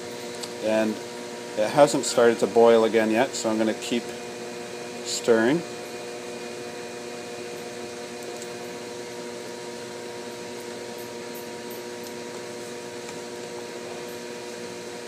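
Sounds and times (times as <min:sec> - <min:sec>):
steady machine hum: 0:00.0 - 0:15.0.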